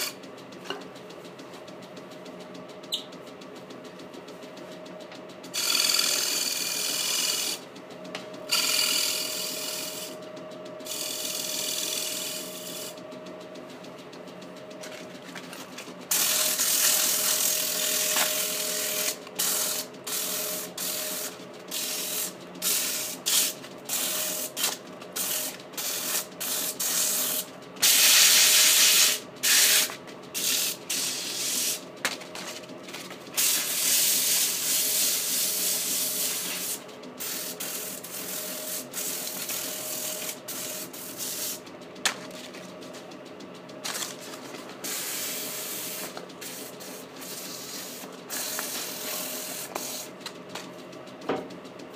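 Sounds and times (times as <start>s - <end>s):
turning tool cutting wood: 5.6s - 7.6s, 8.5s - 10.2s
wood lathe humming: 5.6s - 7.6s, 8.5s - 10.2s
sandpaper hissing on spinning wood: 8.5s - 10.2s, 16.1s - 31.8s, 33.4s - 41.6s, 44.8s - 50.1s.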